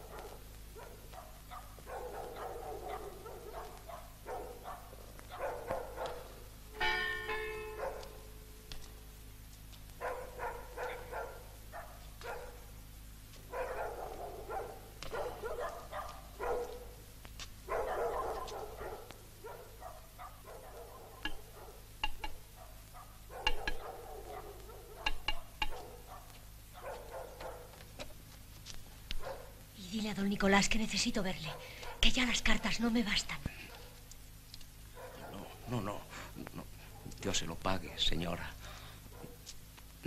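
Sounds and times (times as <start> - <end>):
dogs barking: 0.0 - 8.4, 9.8 - 28.2, 29.1 - 29.7, 31.2 - 32.8, 33.6 - 37.2, 38.6 - 39.6
single ringing note: 6.8 - 8.4.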